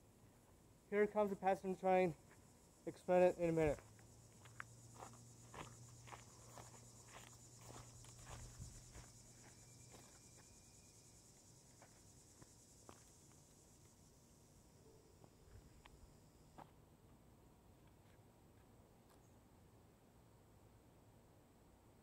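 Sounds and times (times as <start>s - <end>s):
insect chorus: 0.0s - 16.8s.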